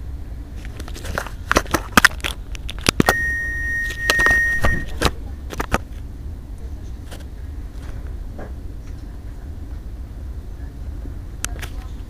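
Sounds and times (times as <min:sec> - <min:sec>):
low steady rumble: 0:00.0 - 0:12.0
steady electronic beep: 0:03.1 - 0:04.9.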